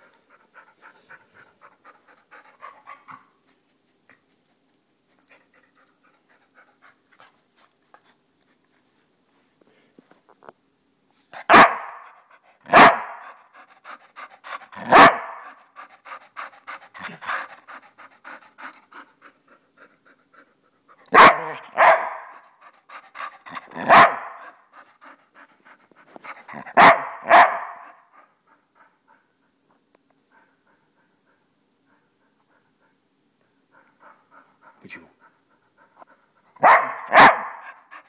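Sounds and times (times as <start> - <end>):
dog panting: 0.0 - 9.9, 12.0 - 38.0
dog barking: 11.4 - 12.1, 12.7 - 13.3, 14.8 - 15.5, 21.1 - 22.4, 23.8 - 24.4, 26.7 - 28.0, 36.6 - 37.7.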